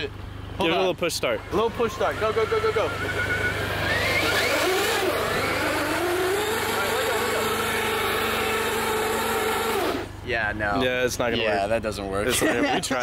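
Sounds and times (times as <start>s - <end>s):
electric motor whine: 1.4s - 10.2s.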